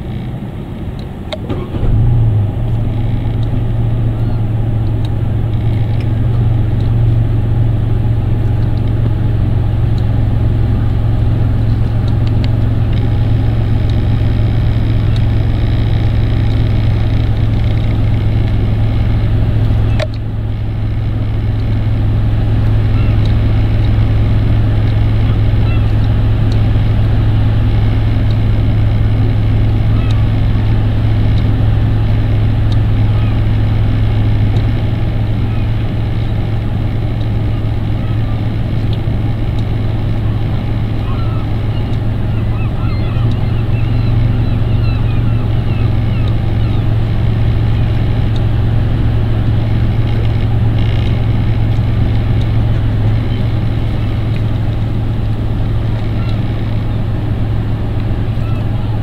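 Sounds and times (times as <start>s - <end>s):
low engine drone: 0.0s - 59.0s
faint bird calls: 22.8s - 23.8s, 24.8s - 26.2s, 29.7s - 31.3s, 32.7s - 34.3s, 35.2s - 38.9s, 39.7s - 48.4s, 55.8s - 57.2s, 58.3s - 59.0s.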